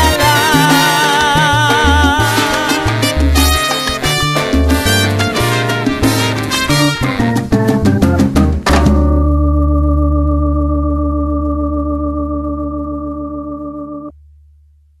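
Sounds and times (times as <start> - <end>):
held band chord: 0.0 - 7.4
salsa band playing: 0.0 - 14.1
low bass note: 7.0 - 15.0.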